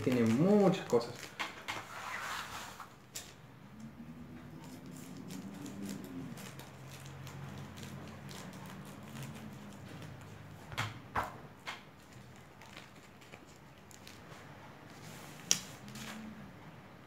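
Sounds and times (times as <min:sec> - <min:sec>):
plastic crinkling snaps: 0:00.0 - 0:01.8, 0:11.7 - 0:14.3, 0:15.4 - 0:16.2.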